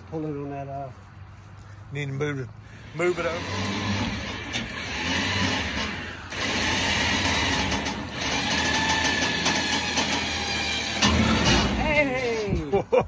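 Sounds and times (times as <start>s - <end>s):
winch motor whirring: 2.8s - 11.8s.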